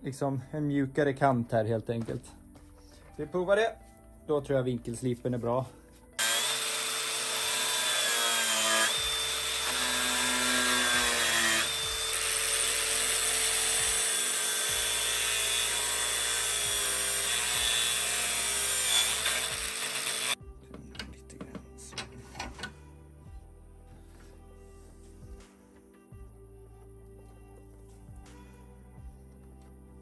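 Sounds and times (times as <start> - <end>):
angle grinder grinding rubber: 6.2 - 20.4.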